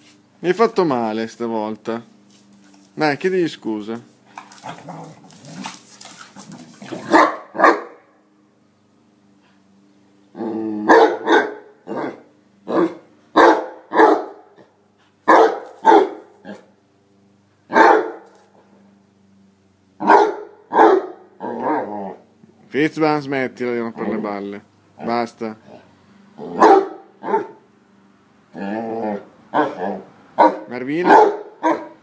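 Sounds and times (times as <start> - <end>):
dog growling: 4.5 - 7.2, 10.3 - 11.0, 21.4 - 22.3, 25.0 - 27.5, 28.5 - 30.1
dogs barking: 6.9 - 8.1, 10.8 - 14.5, 15.3 - 16.7, 17.7 - 18.3, 20.0 - 22.2, 26.4 - 27.7, 29.5 - 32.0.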